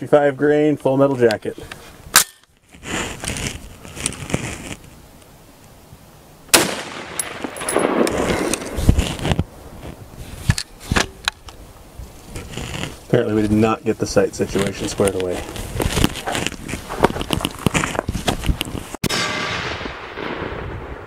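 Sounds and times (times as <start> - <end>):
rifle shot echoing: 6.5 - 8.7, 19.0 - 21.0.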